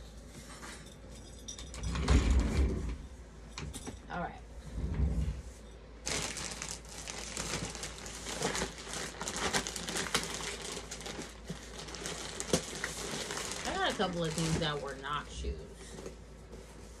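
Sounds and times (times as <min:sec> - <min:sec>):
packaging crinkling and rustling: 0:06.0 - 0:16.2.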